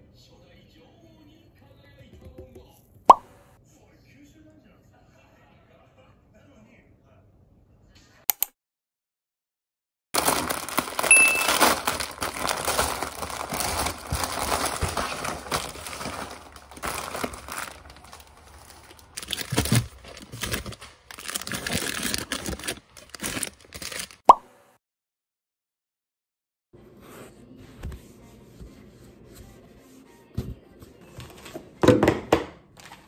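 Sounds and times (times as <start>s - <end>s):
plastic packs crinkling: 10.2s - 24.2s.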